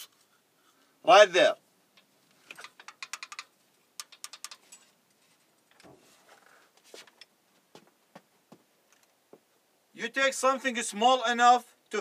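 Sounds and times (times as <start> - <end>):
soft rustling: 4.6 - 8.6.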